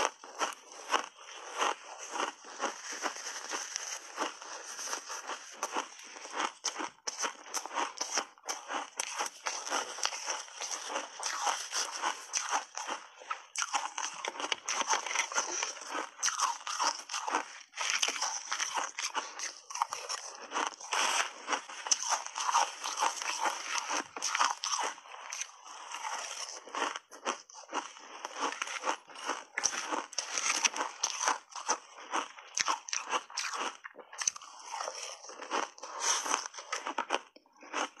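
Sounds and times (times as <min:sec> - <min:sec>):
crunching and chewing frozen berries: 0:00.0 - 0:38.0.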